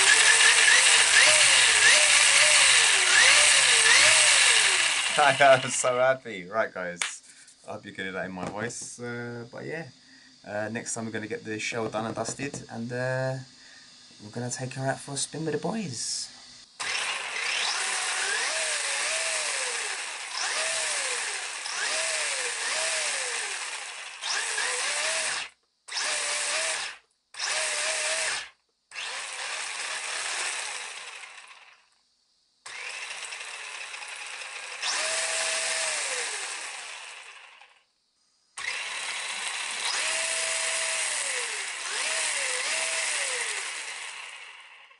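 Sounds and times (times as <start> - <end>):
electric motor whine revving: 0.0 - 5.9, 16.8 - 31.8, 32.7 - 37.8, 38.6 - 44.9.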